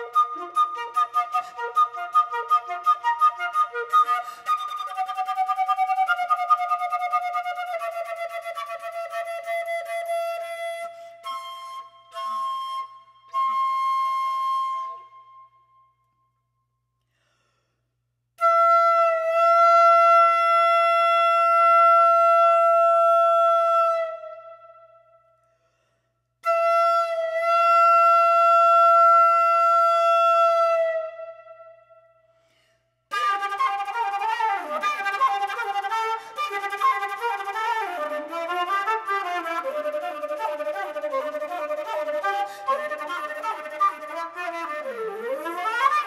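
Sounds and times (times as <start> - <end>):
solo flute playing: 0.0 - 16.0, 18.4 - 25.2, 26.4 - 32.3, 33.1 - 46.0.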